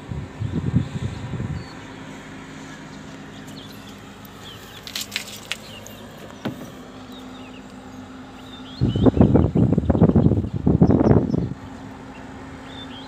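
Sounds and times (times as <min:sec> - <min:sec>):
wind buffeting microphone: 0:00.0 - 0:01.9, 0:08.7 - 0:12.0
distant engine humming: 0:00.0 - 0:13.0
birds chirping: 0:00.4 - 0:13.0.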